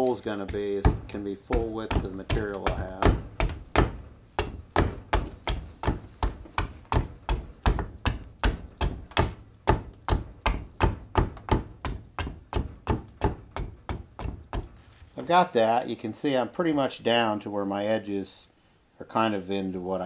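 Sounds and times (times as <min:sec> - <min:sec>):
hand axe chopping wood: 0:00.0 - 0:14.8.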